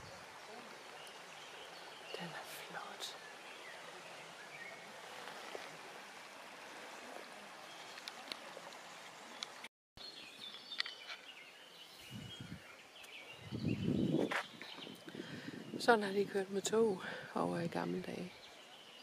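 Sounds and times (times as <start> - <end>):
shallow river flowing: 0.0 - 13.4
birds chirping: 0.0 - 19.0.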